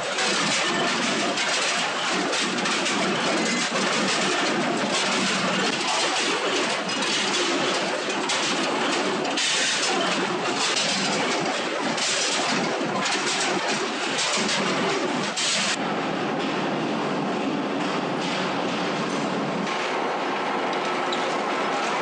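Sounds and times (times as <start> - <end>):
sheet metal scraps clinking: 0.0 - 15.8
metalworking machinery clatter: 0.0 - 22.0.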